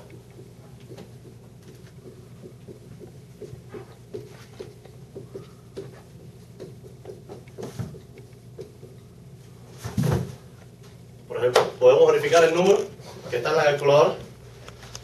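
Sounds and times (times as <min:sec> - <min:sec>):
writing taps on a board: 0:00.0 - 0:09.0
low room hum: 0:00.0 - 0:15.0.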